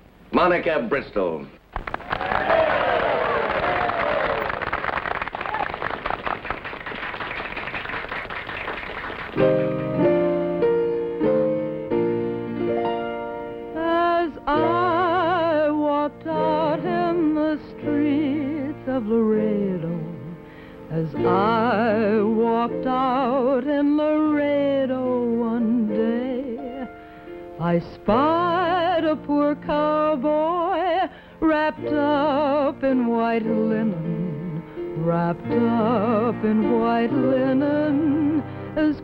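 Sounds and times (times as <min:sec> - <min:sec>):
audience applause: 0:01.8 - 0:09.6
piano chords: 0:08.1 - 0:39.0
woman singing with vibrato: 0:13.8 - 0:26.9, 0:27.6 - 0:39.0.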